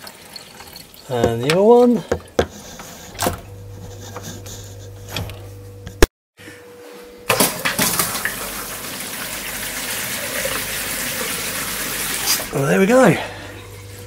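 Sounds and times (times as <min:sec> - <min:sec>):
tap water running into steel sink: 0:00.0 - 0:02.6, 0:07.6 - 0:12.6.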